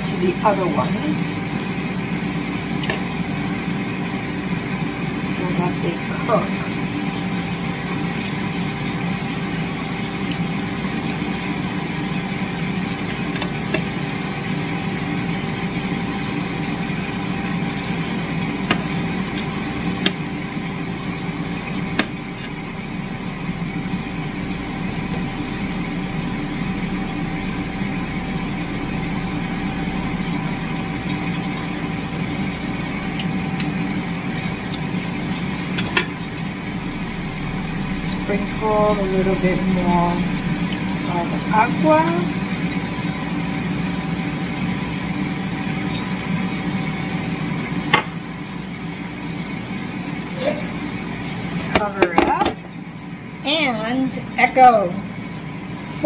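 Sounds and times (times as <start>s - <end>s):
mechanical motor hum: 0.0s - 56.0s.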